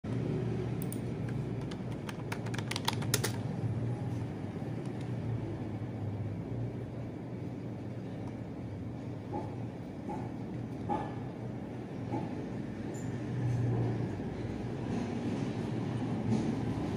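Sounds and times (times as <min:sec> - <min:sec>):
keyboard clicks: 0:00.8 - 0:03.4, 0:04.8 - 0:05.2.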